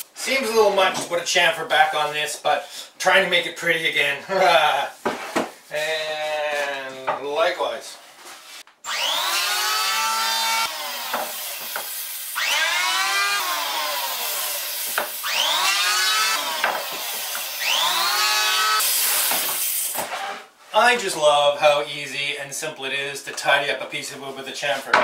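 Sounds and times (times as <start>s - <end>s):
electric hand planer cutting wood: 8.9s - 19.1s.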